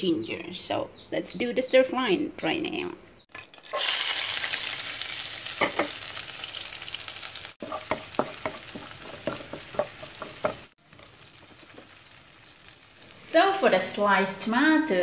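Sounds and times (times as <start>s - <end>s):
food sizzling in hot oil: 3.3s - 14.4s
spatula knocking against pan: 7.6s - 10.7s.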